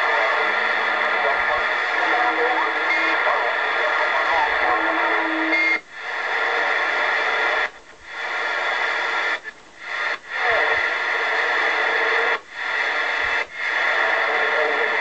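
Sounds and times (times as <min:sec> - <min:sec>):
radio static: 0:00.0 - 0:15.0.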